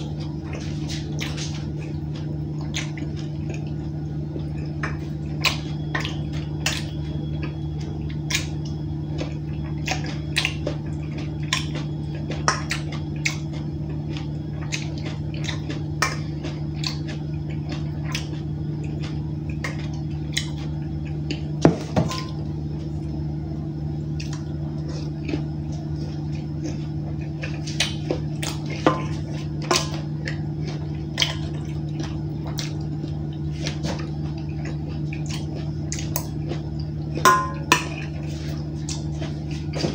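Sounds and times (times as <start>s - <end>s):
wet squishing: 0.0s - 22.5s, 24.1s - 39.9s
low hum: 0.0s - 39.9s
spoon clinking on metal bowl: 37.3s - 37.9s.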